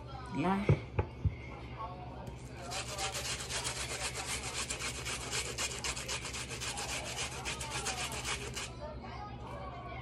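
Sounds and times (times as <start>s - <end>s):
onion scraping on metal grater: 2.6s - 8.7s.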